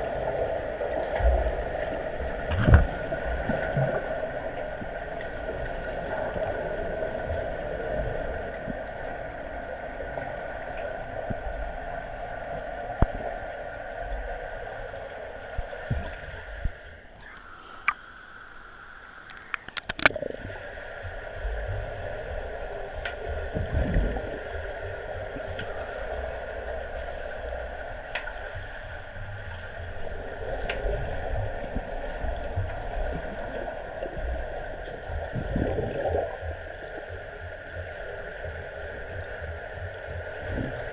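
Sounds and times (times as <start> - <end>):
underwater hum and hiss: 0.0 - 40.9
sharp splashing clicks: 19.3 - 20.2.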